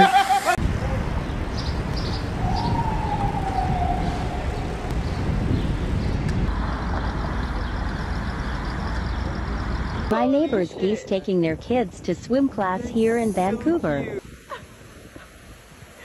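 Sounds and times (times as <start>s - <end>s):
city traffic rumble: 0.0s - 16.0s
siren wailing: 2.4s - 4.9s.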